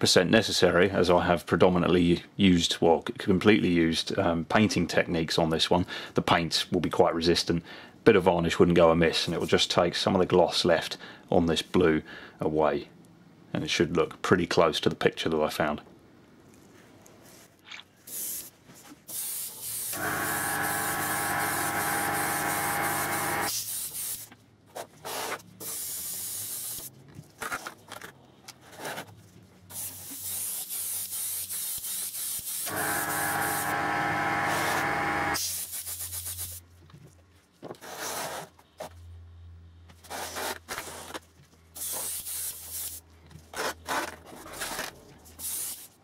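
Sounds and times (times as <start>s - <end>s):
airbrush spraying hiss: 18.1s - 18.5s, 19.1s - 24.3s, 25.6s - 26.9s, 29.7s - 33.8s, 34.4s - 36.6s, 45.4s - 46.0s.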